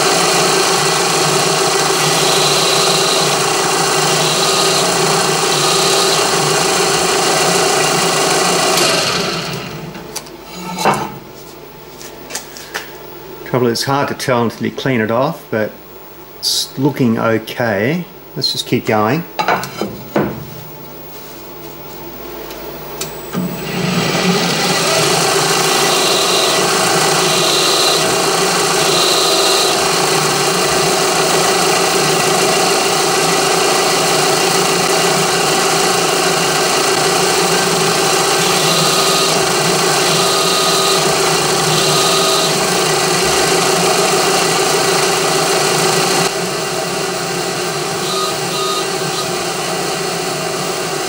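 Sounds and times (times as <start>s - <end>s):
milling machine grinding metal: 0.0s - 10.8s, 23.4s - 51.0s.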